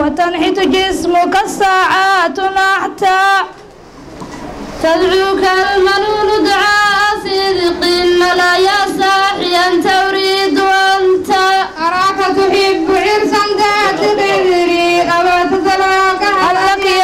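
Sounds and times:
girls singing a chant: 0:04.8 - 0:17.0.

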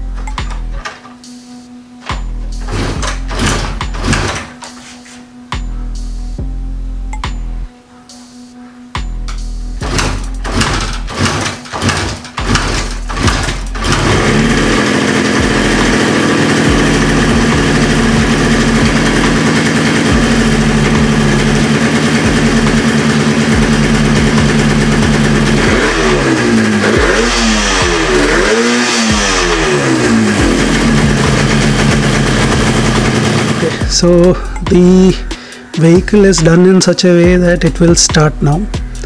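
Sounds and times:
motorcycle kick-start: 0:00.0 - 0:01.3, 0:02.0 - 0:05.2, 0:09.2 - 0:34.8
engine revving: 0:02.5 - 0:04.5, 0:09.8 - 0:34.3
two-stroke engine idling: 0:09.8 - 0:35.2.

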